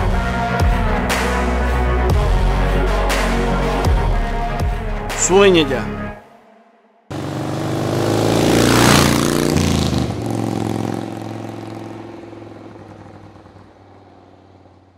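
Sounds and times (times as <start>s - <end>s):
vehicle engine revving past: 7.1s - 14.9s.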